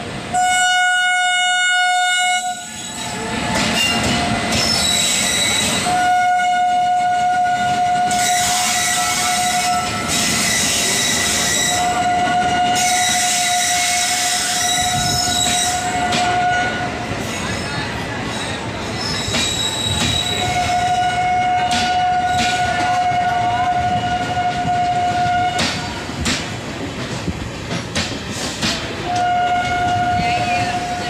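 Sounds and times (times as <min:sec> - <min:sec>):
train wheels rolling on rails: 0:00.0 - 0:31.0
train horn blasts: 0:00.3 - 0:02.8, 0:05.4 - 0:10.2, 0:11.5 - 0:16.9, 0:20.4 - 0:26.0, 0:29.0 - 0:31.0.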